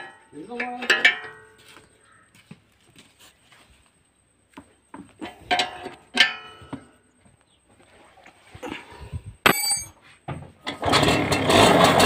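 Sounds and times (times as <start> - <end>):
ringing metal clinks: 9.4 - 10.0.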